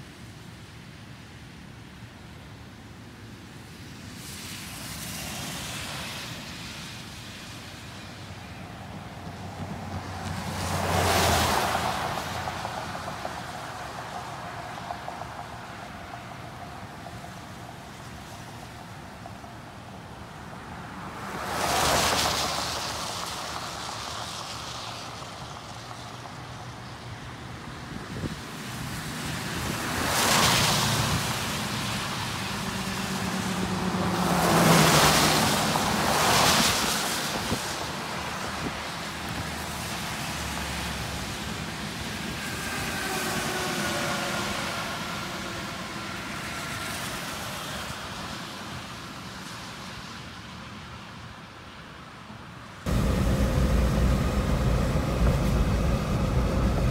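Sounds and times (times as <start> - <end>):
steady traffic rush: 0.0 - 56.9
vehicles passing with tyre hiss: 0.0 - 56.9
vehicle engine hum: 52.9 - 56.9.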